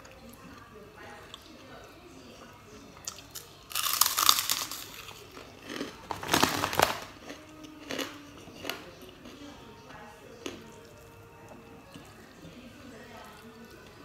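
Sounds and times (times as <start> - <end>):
cracker crunching being chewed: 3.0 - 12.2.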